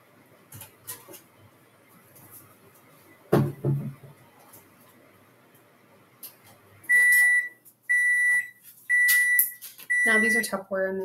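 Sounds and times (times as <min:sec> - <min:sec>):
microwave oven beeps: 0:06.9 - 0:10.5.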